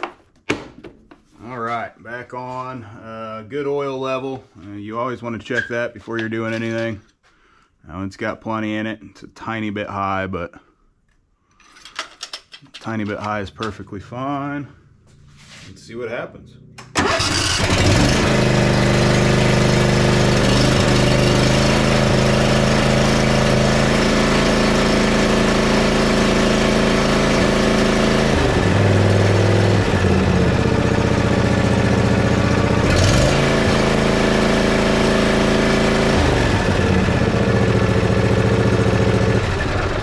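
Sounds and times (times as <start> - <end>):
lawn mower engine running: 16.8 - 40.0.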